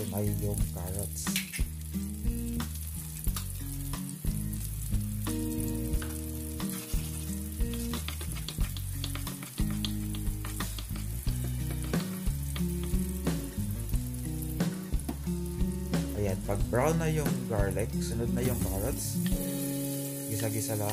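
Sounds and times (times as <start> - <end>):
garlic sizzling in oil: 0.0 - 20.9
oil spitting: 0.2 - 16.2
wooden spoon clicking: 8.0 - 12.9
steady low notes: 11.0 - 19.3.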